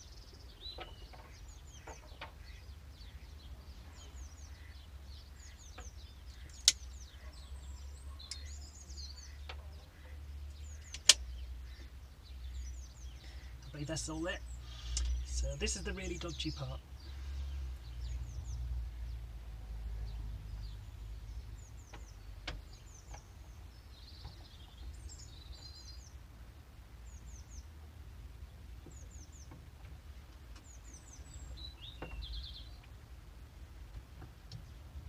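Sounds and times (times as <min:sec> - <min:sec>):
low outdoor rumble: 0:00.0 - 0:35.0
small birds chirping: 0:00.0 - 0:35.0
faint clicks: 0:05.7 - 0:06.9, 0:08.2 - 0:08.6, 0:09.4 - 0:11.8, 0:14.8 - 0:15.3, 0:28.8 - 0:31.0.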